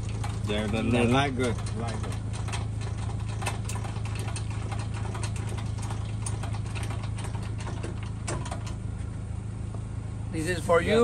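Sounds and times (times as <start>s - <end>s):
truck engine idling: 0.0s - 11.0s
trailer jack clicks: 0.2s - 8.8s.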